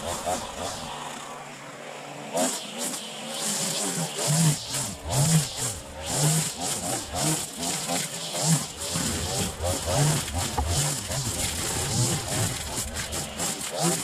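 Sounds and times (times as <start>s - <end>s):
string trimmer engine revving: 3.8s - 14.0s.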